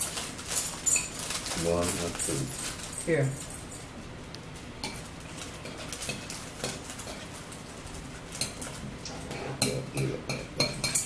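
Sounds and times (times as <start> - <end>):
spoons clinking against bowls: 0.5 - 1.2, 4.8 - 7.3, 8.3 - 11.0.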